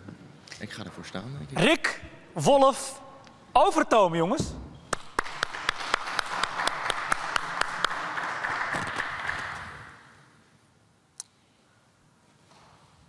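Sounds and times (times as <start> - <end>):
sharp hand claps: 4.9 - 10.0
crowd applause: 5.0 - 10.0.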